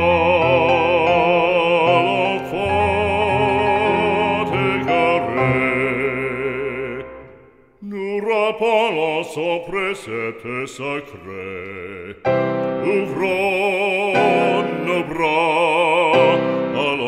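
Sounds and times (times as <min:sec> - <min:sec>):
sustained musical accompaniment: 0:00.0 - 0:07.3
classical solo voice singing: 0:00.0 - 0:17.0.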